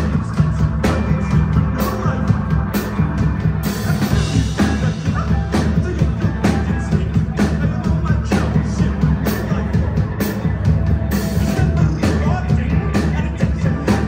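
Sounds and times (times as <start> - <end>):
heavy electric bass line: 0.0 - 14.0
live rock band playing: 0.0 - 14.0.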